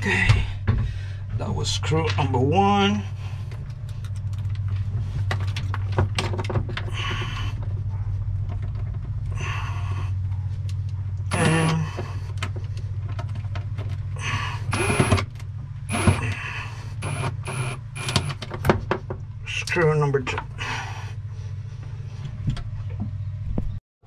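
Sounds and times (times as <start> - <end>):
low hum: 0.0 - 23.8
impact driver driving screw: 14.7 - 15.3, 15.9 - 16.4, 17.0 - 18.4.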